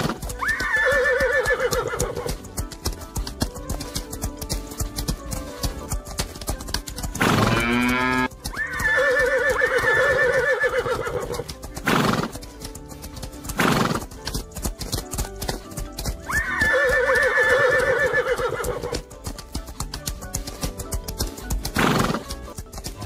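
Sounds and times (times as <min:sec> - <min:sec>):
horse whinnying: 0:00.0 - 0:02.4, 0:07.2 - 0:12.3, 0:16.2 - 0:19.0
galloping hoofbeats: 0:00.0 - 0:23.0.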